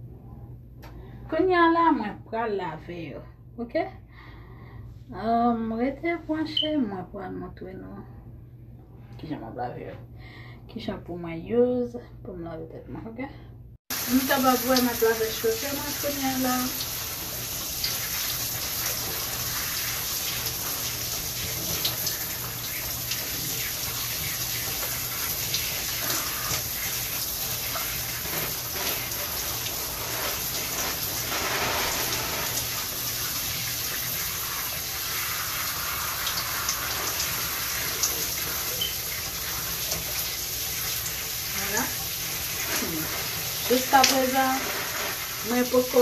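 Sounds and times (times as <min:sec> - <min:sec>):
shower spray running: 0:13.9 - 0:46.0.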